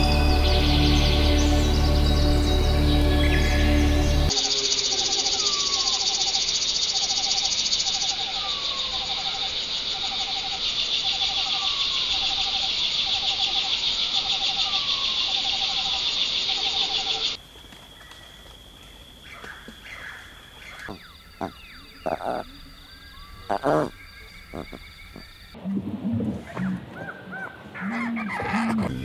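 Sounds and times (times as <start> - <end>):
insects chirping: 0.0 - 25.8
low insect trill: 4.3 - 25.6.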